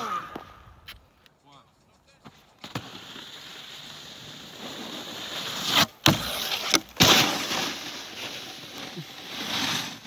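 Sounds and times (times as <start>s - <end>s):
snowboard scraping over snow: 2.6s - 10.0s
snowboard hitting box: 5.7s - 7.9s.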